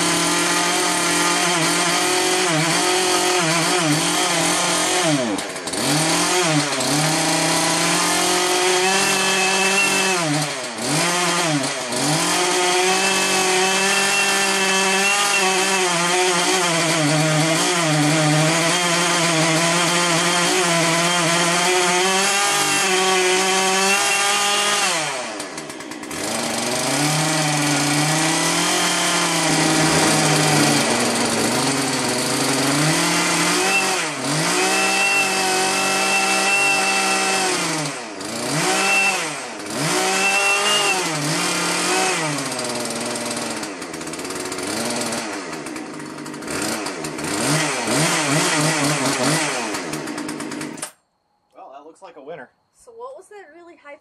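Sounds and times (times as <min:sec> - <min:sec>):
chainsaw engine under load: 0:00.0 - 0:51.0
high generator whine: 0:29.3 - 0:32.8.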